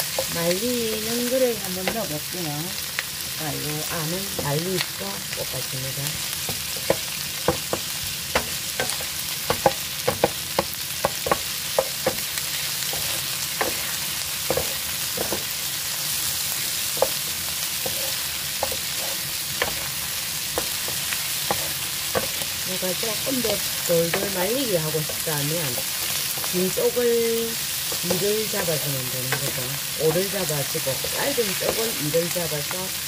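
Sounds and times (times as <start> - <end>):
food sizzling in a frying pan: 0.0 - 33.0
utensil scraping a pan: 17.8 - 22.5.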